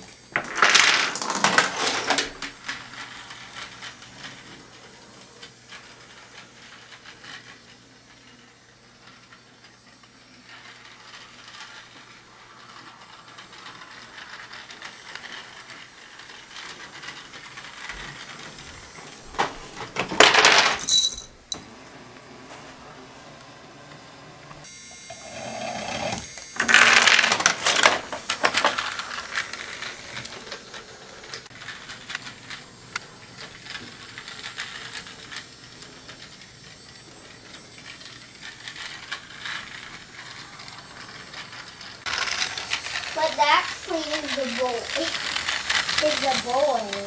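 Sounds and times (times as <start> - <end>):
marbles rolling clicking and knocking: 0.3 - 21.7, 25.2 - 47.0
marbles clattering loudly: 0.4 - 4.2, 20.1 - 21.2, 26.6 - 30.8, 42.0 - 47.0.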